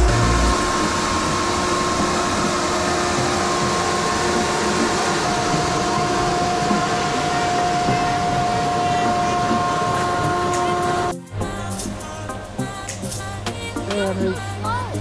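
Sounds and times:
machine rushing and whining: 0:00.0 - 0:11.1.

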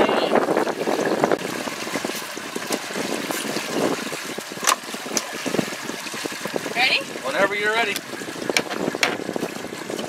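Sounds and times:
water lapping against boat hull: 0:00.0 - 0:10.0
wind on microphone: 0:00.0 - 0:10.0
crab trap knocks and clicks: 0:07.9 - 0:09.3.

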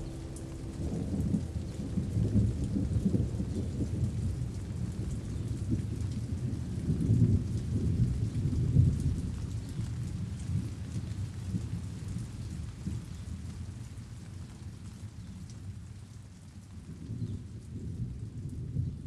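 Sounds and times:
rolling thunder: 0:00.0 - 0:13.1
rain falling: 0:00.0 - 0:19.0.

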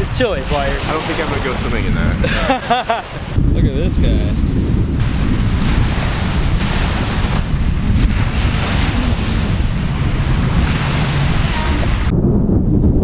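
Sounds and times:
waves washing on pebbles: 0:00.0 - 0:03.2, 0:04.2 - 0:12.1
wind buffeting microphone: 0:00.0 - 0:13.0.

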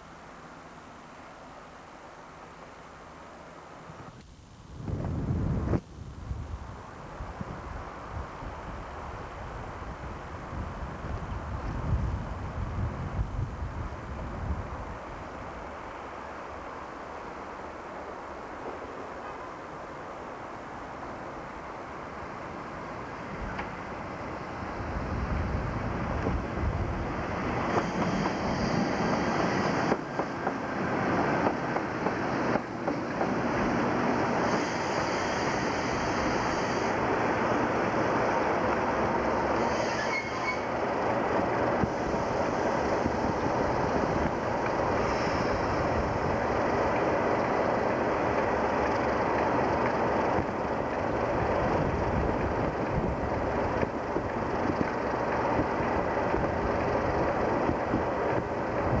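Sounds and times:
diesel locomotive engines: 0:00.0 - 0:59.0
train wheels rolling: 0:21.6 - 0:59.0.

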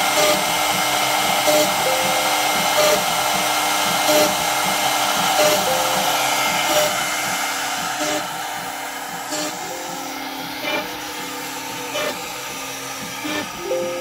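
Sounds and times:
router cutting wood: 0:00.0 - 0:14.0
router spindle whirring: 0:00.0 - 0:14.0
stepper motors moving: 0:00.1 - 0:13.8.

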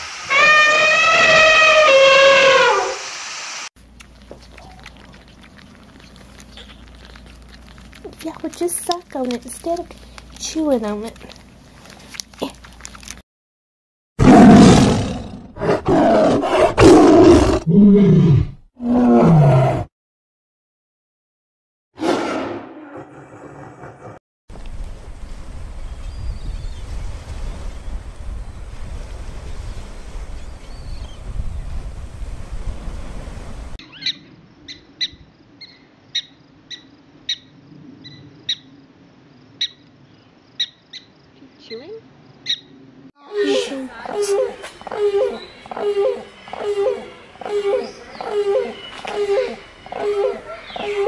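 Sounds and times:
tiger roaring: 0:14.2 - 0:19.9, 0:44.1 - 0:51.0
wind and water noise: 0:24.5 - 0:33.8
prairie dog chirping barks: 0:33.8 - 0:38.7, 0:47.8 - 0:51.0.

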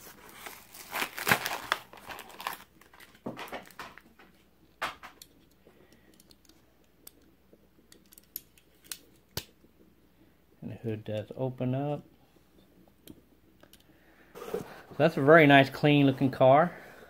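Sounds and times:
plastic packaging crinkling: 0:00.0 - 0:04.3.

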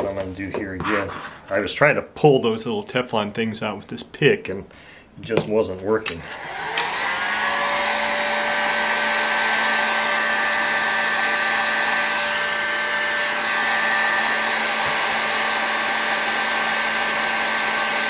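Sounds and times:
heat gun whining: 0:06.0 - 0:18.0.

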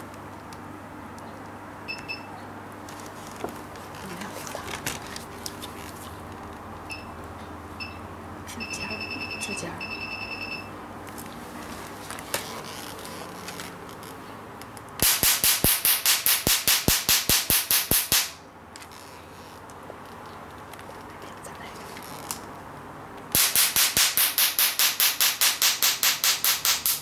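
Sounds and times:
electronic beeps: 0:08.6 - 0:10.7
laser firing sharp snaps: 0:15.0 - 0:18.4, 0:23.3 - 0:27.0.

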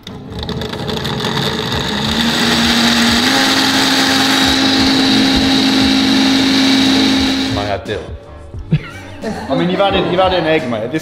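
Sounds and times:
blender motor running: 0:00.0 - 0:07.8.

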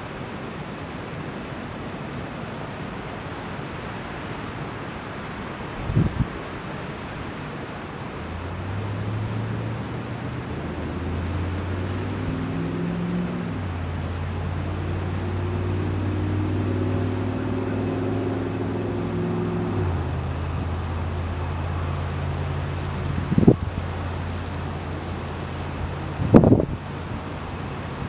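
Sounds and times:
hissing sizzle of burning wood: 0:00.0 - 0:28.0
low electrical hum: 0:05.8 - 0:28.0.

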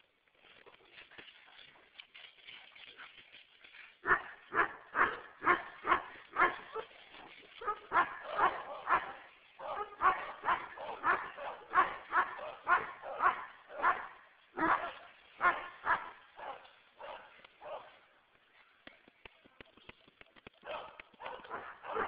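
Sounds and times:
large dog barking: 0:04.0 - 0:07.0, 0:07.6 - 0:18.0, 0:20.6 - 0:22.0.

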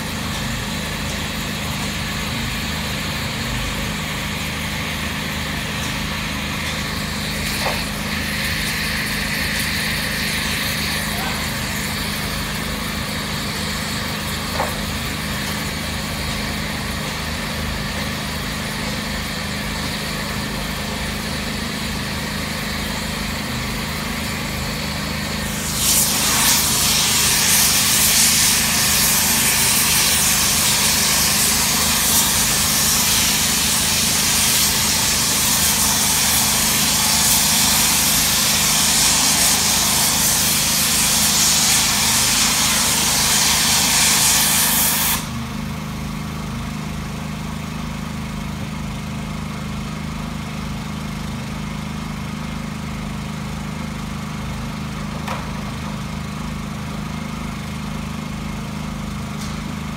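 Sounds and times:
gas torch burning: 0:00.0 - 0:45.6
loud thermite hiss: 0:06.2 - 0:12.6, 0:25.4 - 0:45.4.

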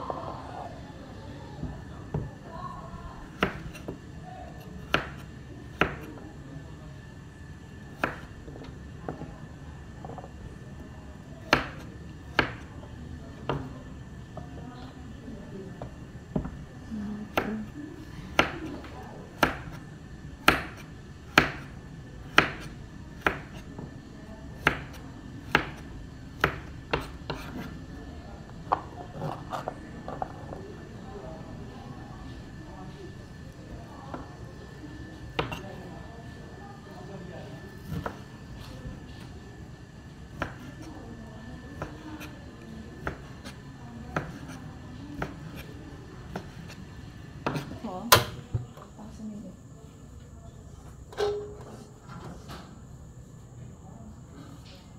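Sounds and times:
knife chopping on plastic board: 0:03.4 - 0:04.0, 0:04.8 - 0:06.2, 0:08.0 - 0:08.3, 0:11.5 - 0:12.7, 0:17.3 - 0:17.5, 0:19.4 - 0:19.8, 0:20.4 - 0:21.7, 0:22.3 - 0:23.9, 0:24.6 - 0:25.8, 0:26.4 - 0:27.7, 0:35.3 - 0:35.6, 0:43.0 - 0:44.6, 0:45.2 - 0:45.7, 0:46.3 - 0:46.8, 0:47.4 - 0:48.7.

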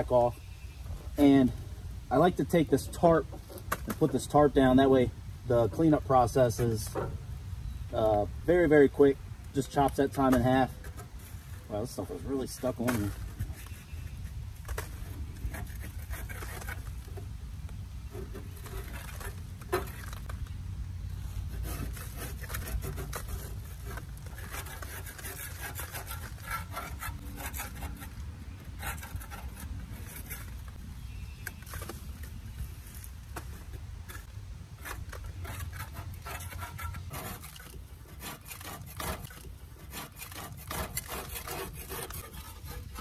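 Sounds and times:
hand scraper scraping metal deck: 0:09.6 - 0:14.0, 0:14.6 - 0:17.3, 0:18.1 - 0:20.3, 0:21.4 - 0:30.8, 0:33.4 - 0:43.0.

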